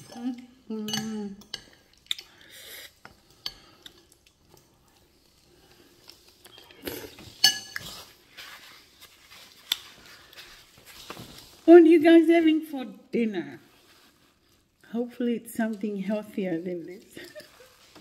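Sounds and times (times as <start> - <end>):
rustling: 3.6 - 12.6, 13.6 - 14.8, 15.8 - 18.0
fork clinking on ceramic bowl: 7.4 - 7.8.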